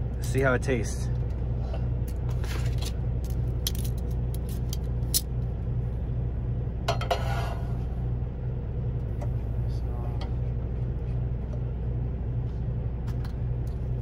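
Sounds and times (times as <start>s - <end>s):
truck engine idling: 0.0s - 14.0s
metal tongs clicking and clattering: 2.8s - 5.3s.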